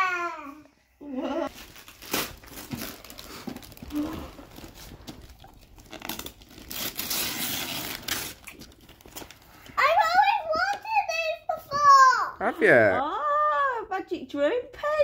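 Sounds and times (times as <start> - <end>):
wrapping paper crinkling and tearing: 1.5 - 9.7.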